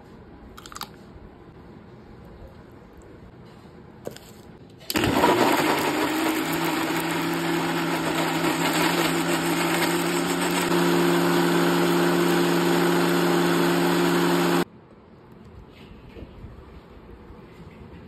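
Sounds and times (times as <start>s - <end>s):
mixer grinder running: 4.9s - 14.6s.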